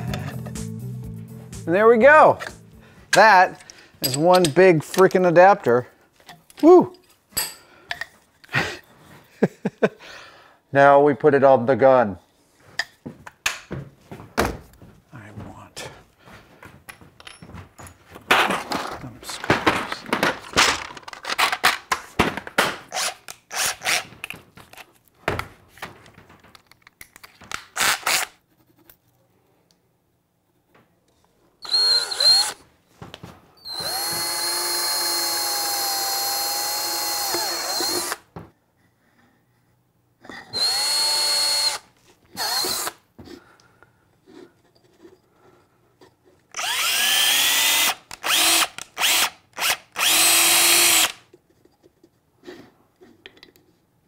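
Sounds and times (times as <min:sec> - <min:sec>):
cordless drill whining: 0:31.6 - 0:32.6, 0:33.6 - 0:38.3, 0:40.5 - 0:43.0, 0:46.5 - 0:51.2.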